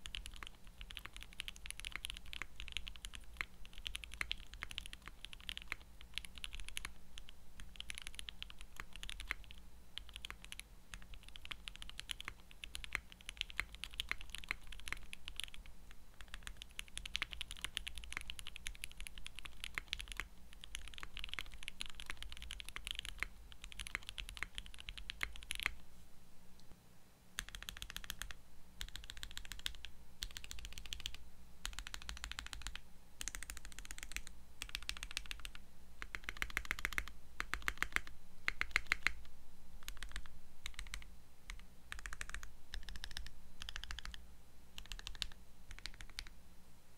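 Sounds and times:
fast typing on mechanical keyboard: 0.0s - 25.8s, 27.4s - 39.2s, 39.8s - 44.2s, 44.8s - 46.3s.

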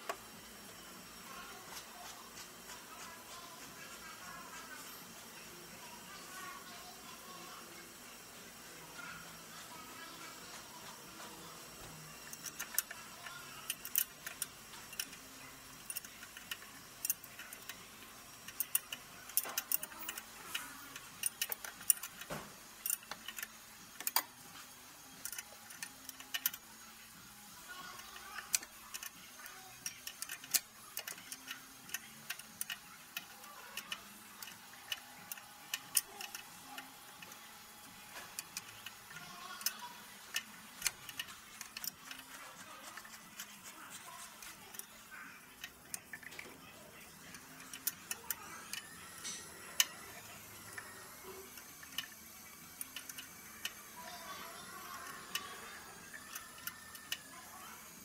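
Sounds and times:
hand tools clicking on metal: 11.2s - 24.4s, 27.8s - 57.4s.

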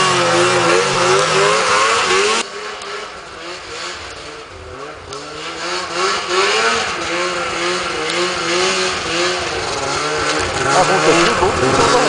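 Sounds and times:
distant snowmobile engine: 0.0s - 12.0s
snowmobile engine revving: 0.0s - 12.0s.

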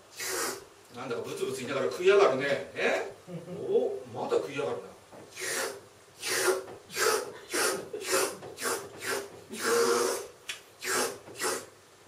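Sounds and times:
mouth slurping sounds: 0.1s - 0.7s, 5.3s - 11.7s.

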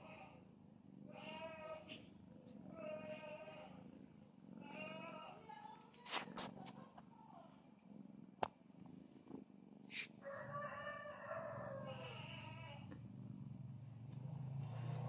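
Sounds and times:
cat crying: 11.0s - 12.8s.

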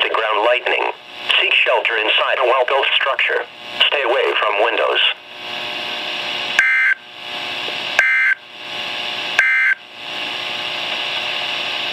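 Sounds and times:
radio hiss: 0.0s - 6.6s.

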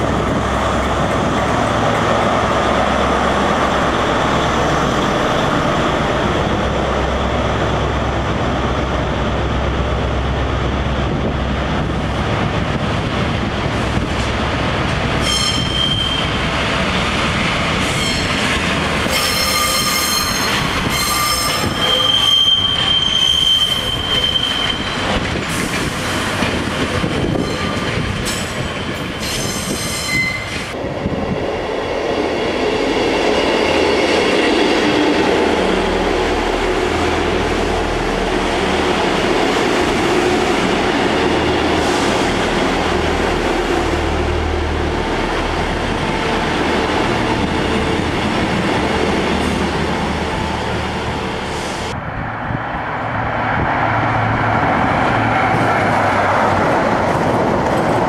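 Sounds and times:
passing train rumbling: 0.0s - 58.0s
train wheels squealing on track: 15.2s - 16.5s, 17.8s - 30.8s.

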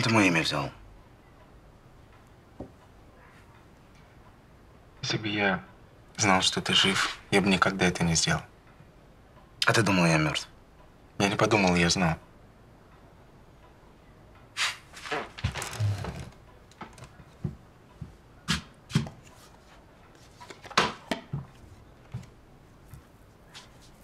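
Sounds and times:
footsteps in a room: 14.6s - 24.0s
handling knocks and scuffs: 15.0s - 19.7s.

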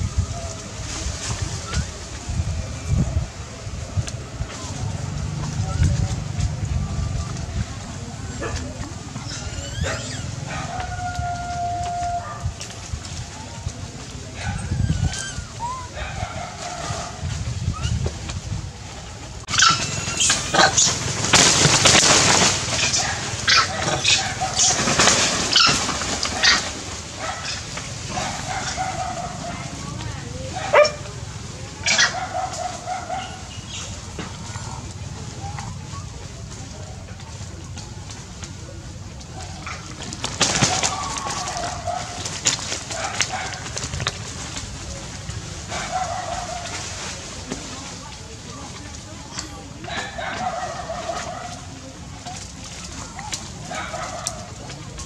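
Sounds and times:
dry leaves rustling: 0.0s - 55.0s
wavering animal call: 9.2s - 12.5s
dog barking and whining: 30.6s - 31.0s.

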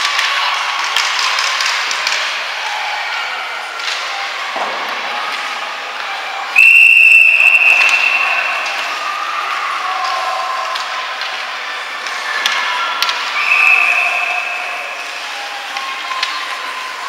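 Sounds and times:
hockey sticks and puck knocking: 0.0s - 2.4s, 10.0s - 13.4s, 15.7s - 16.7s
referee whistle blast: 6.6s - 8.6s, 13.4s - 14.8s.

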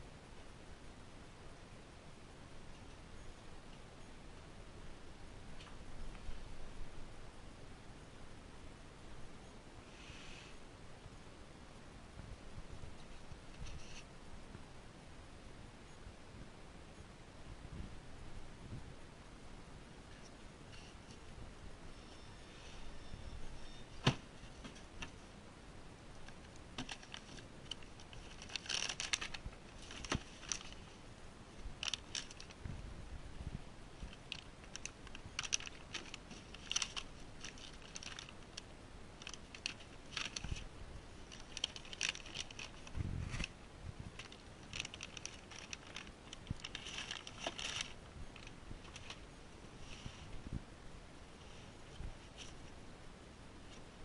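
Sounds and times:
plastic bags crinkling: 26.2s - 31.0s, 31.8s - 32.6s, 34.0s - 43.5s, 44.1s - 49.3s.

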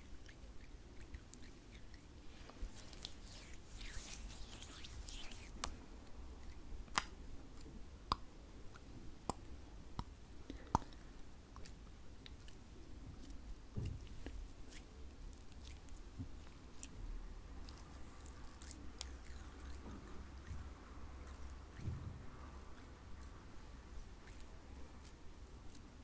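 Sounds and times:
slippery hands rubbing together: 1.8s - 5.8s.

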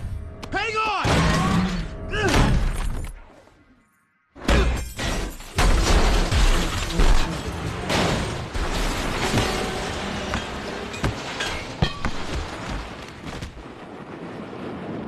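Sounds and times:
glass shattering: 4.6s - 12.6s
car crashing: 4.8s - 13.0s.

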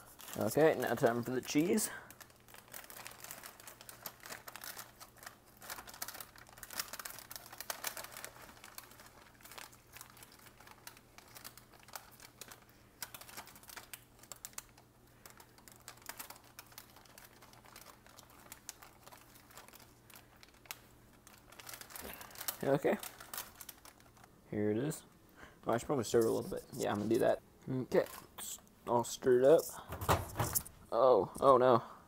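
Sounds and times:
snack packets crinkling: 0.0s - 24.4s.

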